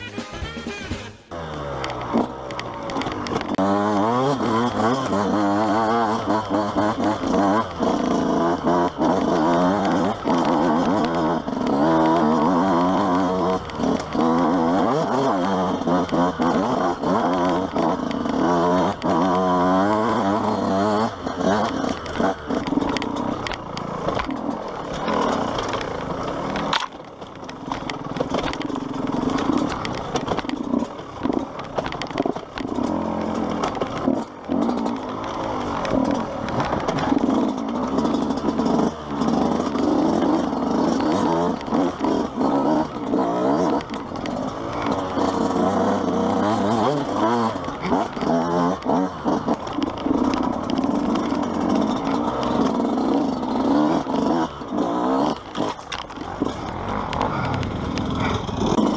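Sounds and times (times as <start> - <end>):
two-stroke engine revving: 0.0 - 58.9.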